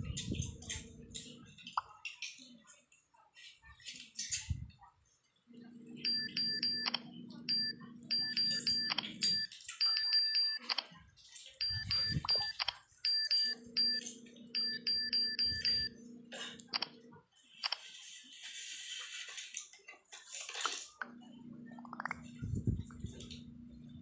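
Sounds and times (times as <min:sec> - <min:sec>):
low steady hum: 0:05.5 - 0:10.8, 0:11.6 - 0:17.2, 0:21.0 - 0:24.0
short high keypress beeps: 0:06.0 - 0:10.8, 0:11.6 - 0:15.9.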